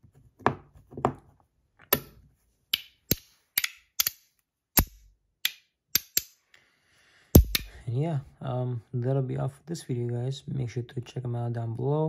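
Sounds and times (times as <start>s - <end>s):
magnetic metal pieces clicking: 2.7s - 6.4s, 7.4s - 7.7s.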